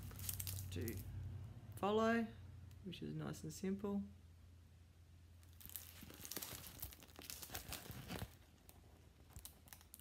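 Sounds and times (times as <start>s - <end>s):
plastic sheet crinkling: 0.0s - 1.1s, 5.4s - 10.0s.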